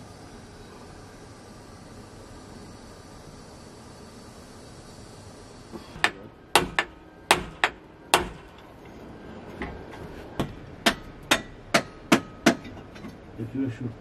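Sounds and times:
hammer striking iron fittings: 5.9s - 8.6s, 10.4s - 13.1s.

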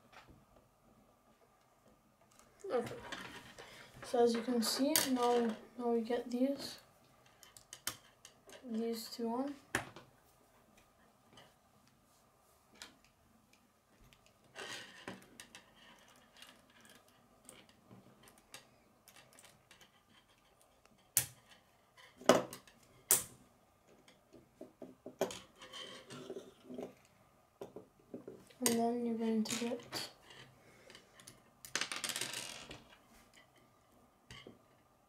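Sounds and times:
plastic pieces clicking and rattling: 7.2s - 8.8s, 14.2s - 23.3s, 30.9s - 33.0s.

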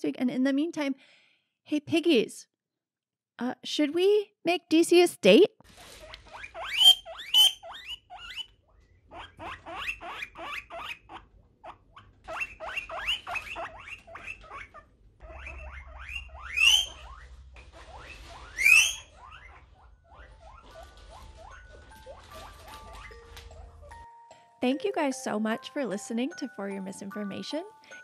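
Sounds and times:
guinea pigs squeaking: 5.6s - 24.0s
guinea pig rising squeals: 5.8s - 24.0s.

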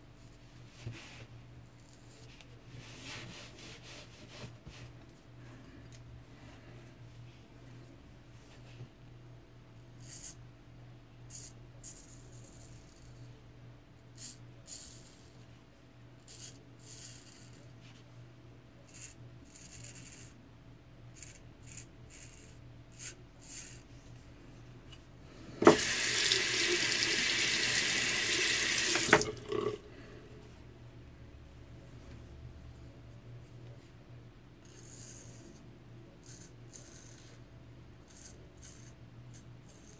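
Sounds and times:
tap running into sink: 25.6s - 29.8s.

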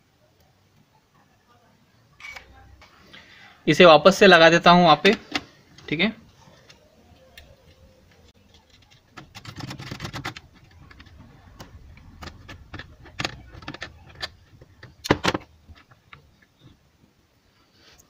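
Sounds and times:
wires rustling: 4.1s - 18.0s.

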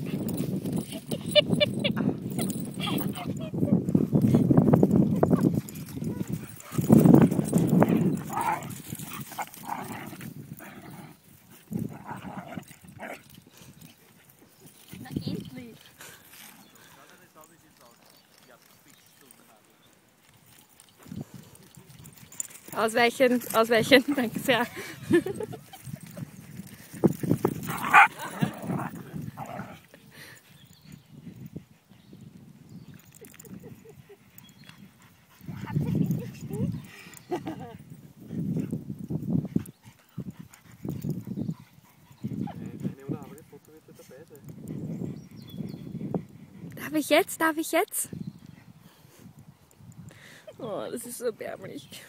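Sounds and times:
dogs barking and yipping: 0.0s - 14.9s, 23.5s - 29.9s
dog barking: 27.8s - 28.1s.

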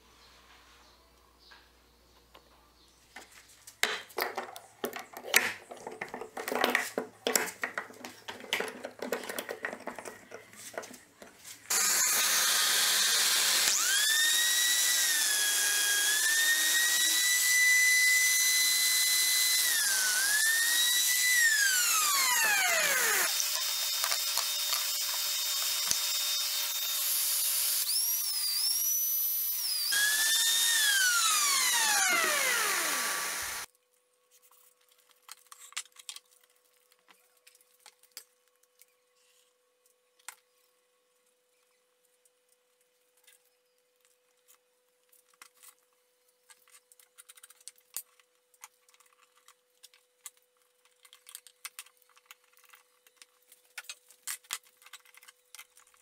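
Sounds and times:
power tool motor whine: 11.7s - 33.7s.

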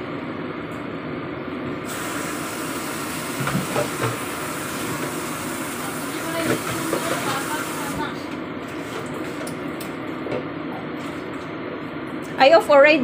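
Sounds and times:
stove and pot hissing: 1.8s - 8.2s.

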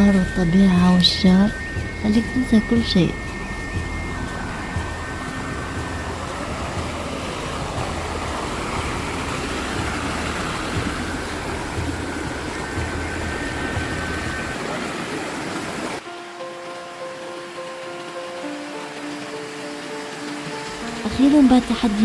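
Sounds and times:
low rumbling bumps: 0.0s - 15.0s
rushing water: 0.0s - 22.0s.

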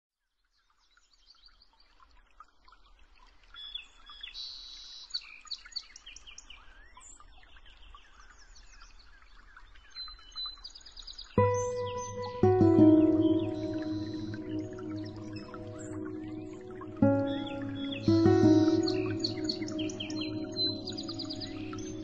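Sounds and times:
songbirds chirping and trilling: 11.4s - 22.0s.

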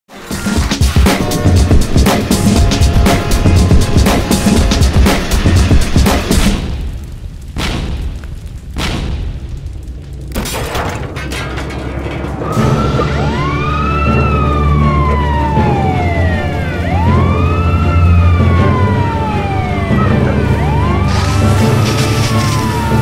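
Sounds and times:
crackling noise: 0.6s - 13.8s, 19.0s - 23.0s
fire engine siren wailing: 1.2s - 5.6s, 12.4s - 23.0s
low rumble: 1.6s - 17.6s.

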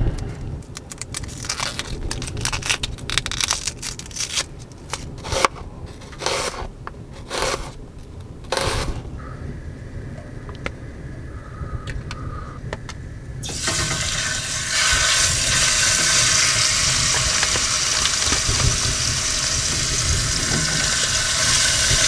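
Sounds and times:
onion skin crackling: 0.6s - 6.6s
knife slicing onion on plastic board: 5.2s - 6.6s, 7.2s - 7.7s.

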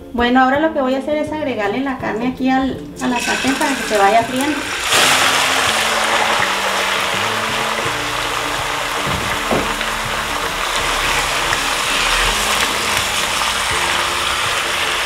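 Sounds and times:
pork sizzling in hot lard: 3.0s - 15.0s
knock: 9.0s - 9.9s.

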